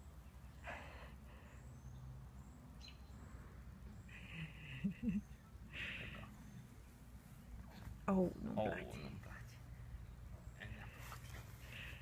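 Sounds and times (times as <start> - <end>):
distant bird chirps: 0.0 - 7.6.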